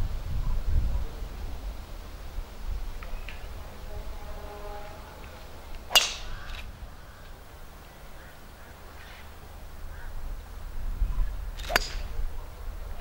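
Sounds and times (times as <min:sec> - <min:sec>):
wind rumble on microphone: 0:00.0 - 0:13.0
golf club striking ball: 0:05.7 - 0:07.3, 0:11.6 - 0:12.2.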